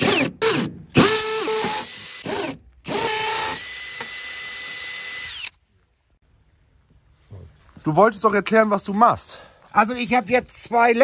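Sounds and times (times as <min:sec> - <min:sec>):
drill boring into brick: 0:00.0 - 0:05.6.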